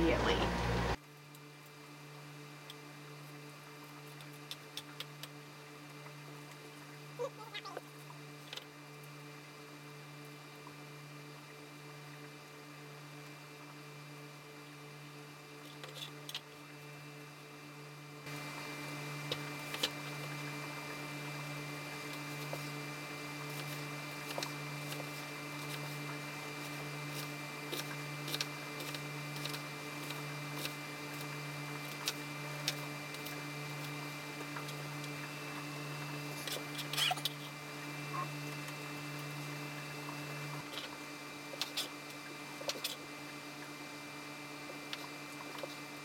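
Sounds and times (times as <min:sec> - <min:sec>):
steady low hum: 0:00.0 - 0:01.0.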